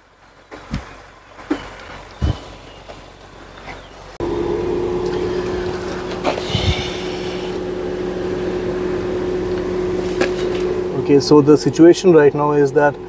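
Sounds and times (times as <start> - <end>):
car engine idling: 4.2 - 13.0.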